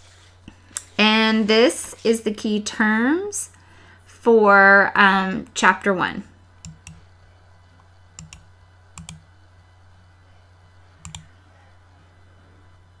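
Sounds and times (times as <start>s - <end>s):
low electrical hum: 0.0s - 13.0s
computer mouse clicking: 6.6s - 7.0s, 8.2s - 9.2s, 11.0s - 11.3s.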